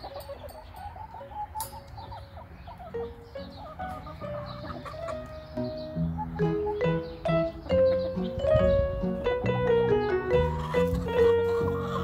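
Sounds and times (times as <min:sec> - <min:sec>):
hen clucking softly: 0:00.0 - 0:05.4, 0:10.3 - 0:12.0
background music: 0:02.9 - 0:12.0.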